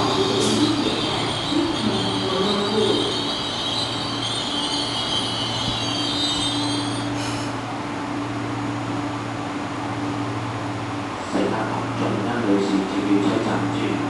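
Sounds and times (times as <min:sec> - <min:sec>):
wavering high-pitched whine: 0:00.0 - 0:07.3
train low hum: 0:00.0 - 0:14.0.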